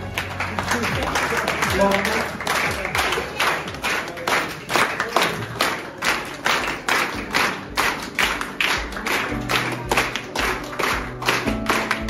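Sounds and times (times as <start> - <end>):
music: 0.0 - 12.0
rhythmic hand claps: 0.0 - 12.0.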